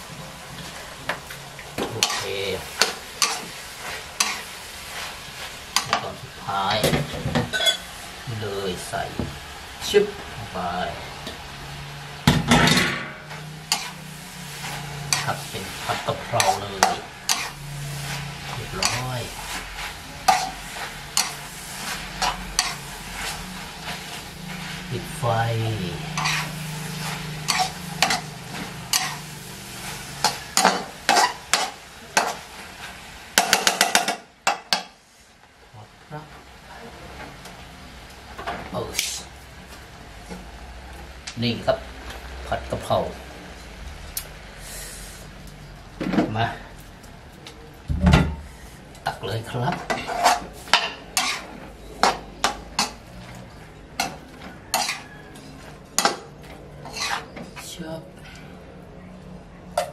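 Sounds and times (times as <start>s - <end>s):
metal spatula scraping a wok: 2.0s - 6.1s, 12.6s - 34.1s, 49.7s - 57.7s
heavy thump: 47.9s - 48.4s.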